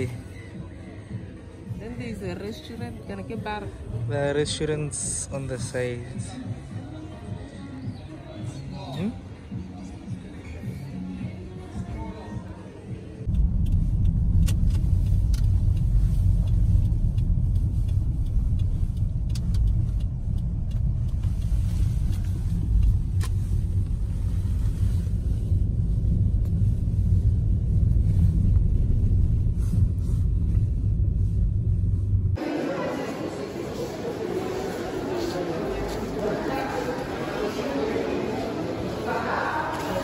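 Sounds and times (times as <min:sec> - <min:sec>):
car driving low rumble: 0:13.2 - 0:32.5.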